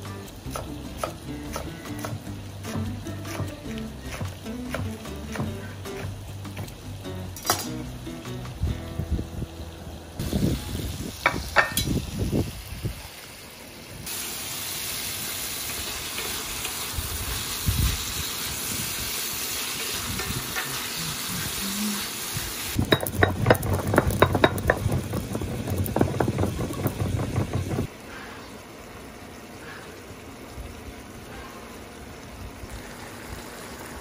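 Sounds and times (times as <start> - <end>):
shrimp sizzling in a pan: 10.2 - 13.4, 14.0 - 27.8
pestle knocking in stone mortar: 22.8 - 27.9.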